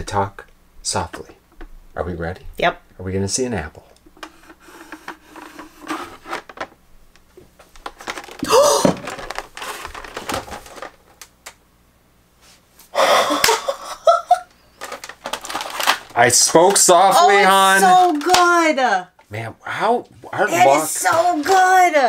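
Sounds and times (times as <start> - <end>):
plastic crinkling: 7.6 - 11.3, 14.6 - 18.6.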